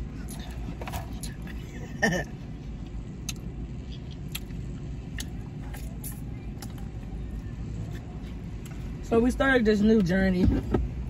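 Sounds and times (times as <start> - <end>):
car rumble: 0.0 - 11.0
person eating: 0.1 - 6.8.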